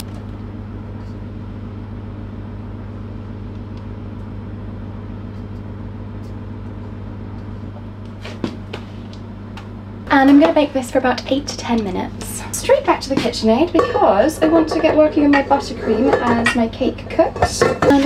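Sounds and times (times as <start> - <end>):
kitchen appliance electrical hum: 0.0 - 18.0.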